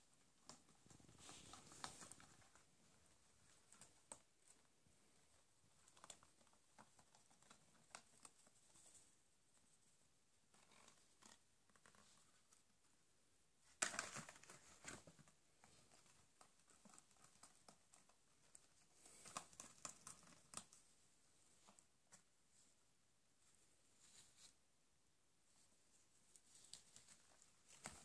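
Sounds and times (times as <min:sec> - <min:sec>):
rabbit gnawing cardboard: 0:00.1 - 0:09.8, 0:13.6 - 0:22.2, 0:26.4 - 0:28.0.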